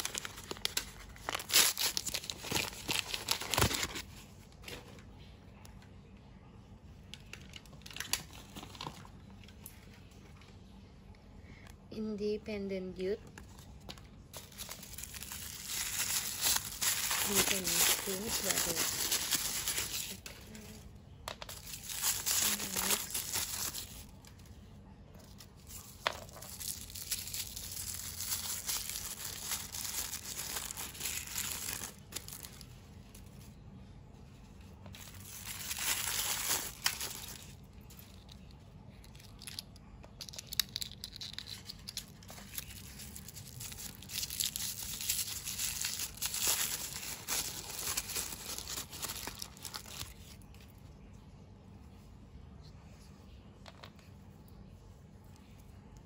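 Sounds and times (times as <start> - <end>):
wrappers torn and crumpled: 0.0 - 4.1, 7.3 - 9.1, 14.3 - 20.8, 21.4 - 24.5, 25.2 - 33.5, 34.9 - 50.7.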